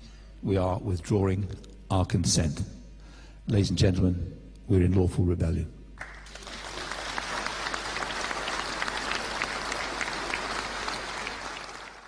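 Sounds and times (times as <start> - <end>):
audience clapping: 6.0 - 12.0.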